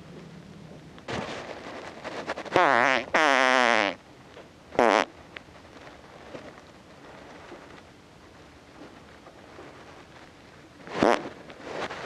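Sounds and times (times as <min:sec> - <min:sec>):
recorded fart noises: 0:01.0 - 0:04.0, 0:04.7 - 0:05.2, 0:10.8 - 0:12.0.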